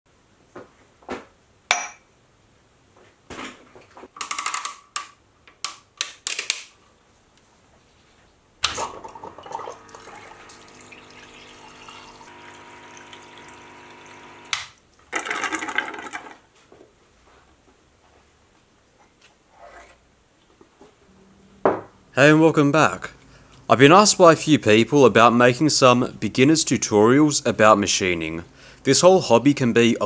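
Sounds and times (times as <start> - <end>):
pump humming: 8.7 - 14.6
liquid pouring into a mug: 8.8 - 14.5.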